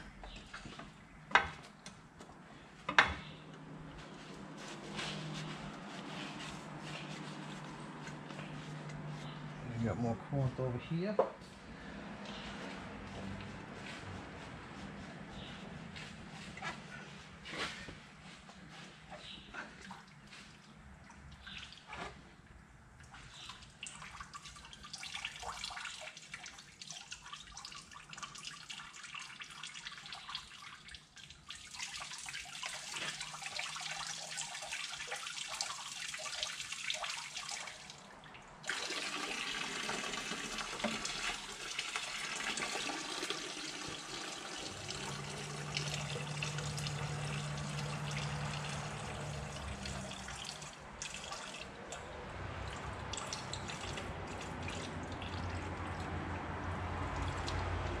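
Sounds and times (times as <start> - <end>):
coolant splashing into a bucket: 23.0 - 58.0.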